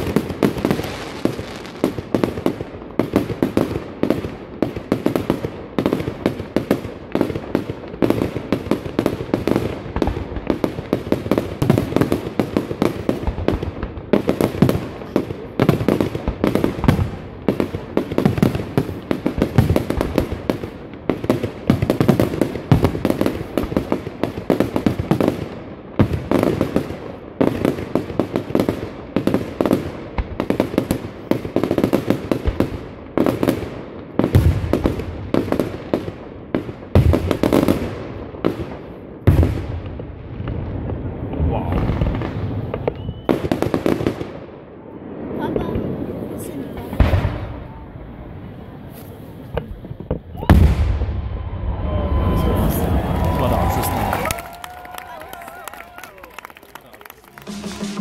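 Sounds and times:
fireworks bangs: 0.0 - 58.0
fireworks crackling: 0.0 - 58.0.

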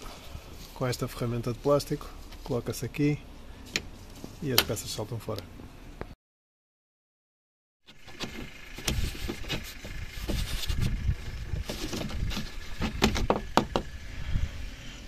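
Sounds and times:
low rumble: 8.0 - 15.0.

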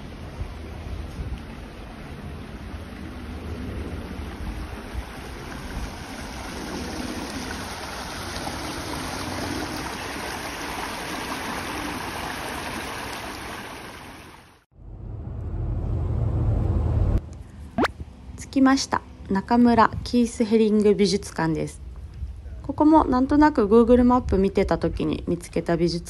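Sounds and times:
water rushing over stones: 4.4 - 14.6.

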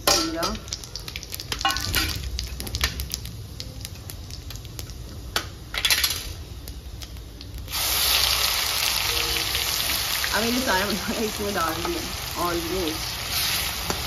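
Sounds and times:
paste sizzling in hot oil: 7.6 - 14.0.

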